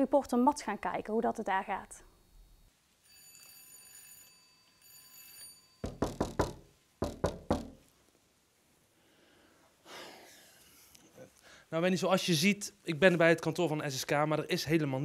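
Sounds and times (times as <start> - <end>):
faint bell-like ringing tone: 3.0 - 5.9
knuckles knocking on glass door: 5.8 - 7.8.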